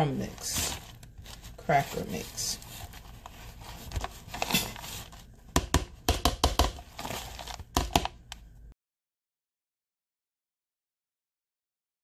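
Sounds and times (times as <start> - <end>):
cracker crumbs crunching: 6.8 - 8.2.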